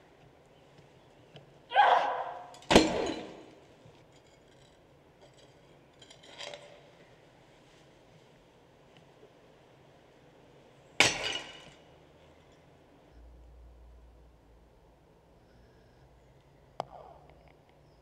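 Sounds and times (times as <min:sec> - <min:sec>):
shards clinking: 0:02.4 - 0:06.9, 0:11.0 - 0:12.7.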